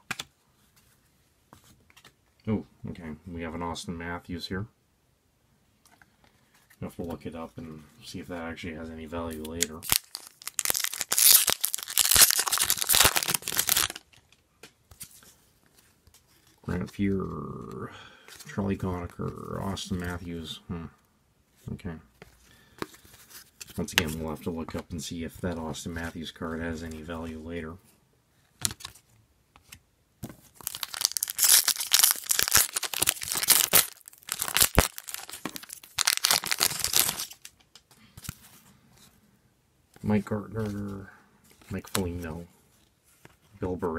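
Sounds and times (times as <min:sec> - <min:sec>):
foil wrapper tearing and crinkling: 0:09.8 - 0:14.2, 0:30.6 - 0:37.5.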